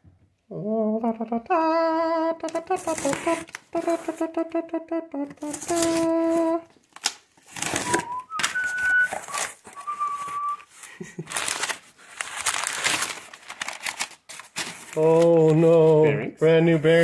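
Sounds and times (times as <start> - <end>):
person singing briefly: 0.5 - 6.7
packing paper rustling and crinkling: 2.6 - 4.3, 5.4 - 16.0
whistled notes: 7.7 - 10.7.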